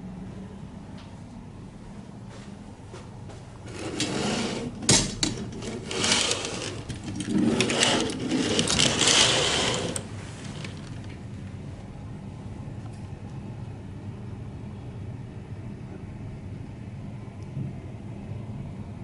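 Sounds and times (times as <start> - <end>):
steady low hum: 0.0 - 19.0
curtain scraping along track: 3.6 - 11.2.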